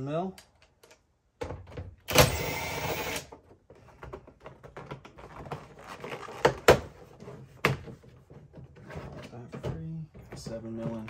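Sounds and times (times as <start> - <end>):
cordless driver running: 2.1 - 3.3.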